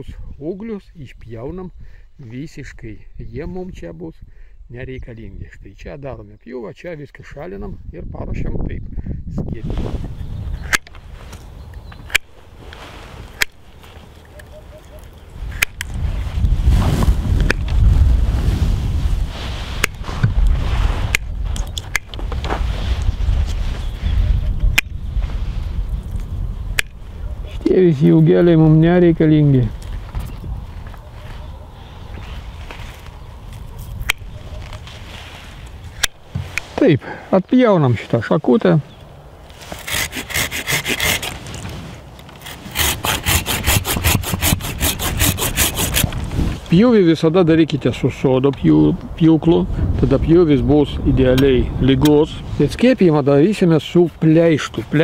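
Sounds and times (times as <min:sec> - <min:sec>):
wind buffeting microphone: 0:07.2 - 0:37.1, 0:38.9 - 0:55.0
pruning shears snipping: 0:10.6 - 0:16.0, 0:19.8 - 0:20.0, 0:21.1 - 0:22.6, 0:24.6 - 0:25.0, 0:26.7 - 0:27.0, 0:32.7 - 0:35.0, 0:35.7 - 0:36.8, 0:39.5 - 0:46.2
hand saw cutting branch: 0:12.1 - 0:14.0, 0:39.5 - 0:46.3.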